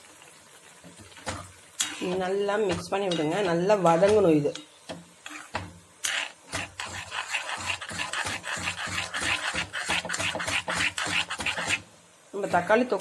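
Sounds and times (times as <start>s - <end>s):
spatula scraping paste in pan: 1.8s - 11.9s.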